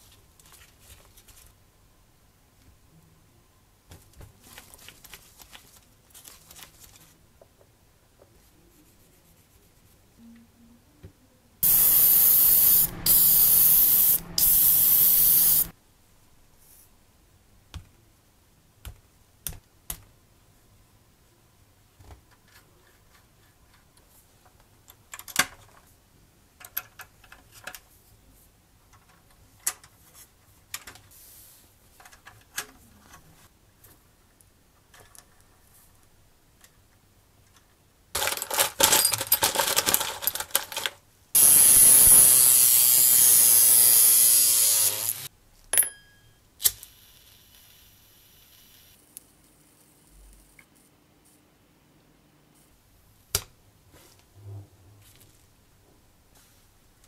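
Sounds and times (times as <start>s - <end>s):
hissing nozzle spray: 11.6s - 15.7s, 41.4s - 45.3s.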